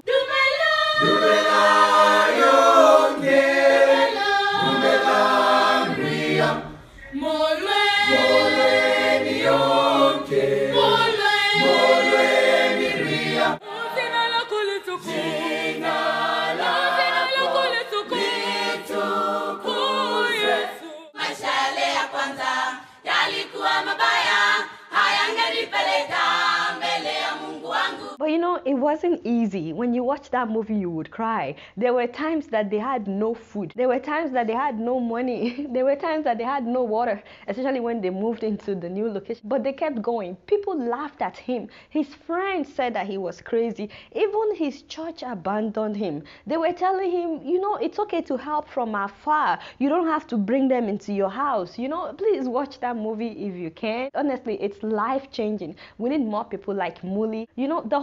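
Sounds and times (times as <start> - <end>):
youth choir singing: 0.1 - 28.2.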